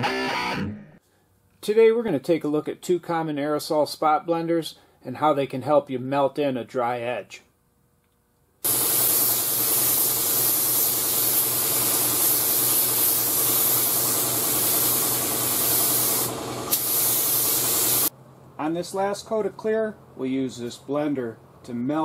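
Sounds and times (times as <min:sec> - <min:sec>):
spray gun hissing: 0:08.6 - 0:18.1
spray gun click: 0:15.8 - 0:17.5.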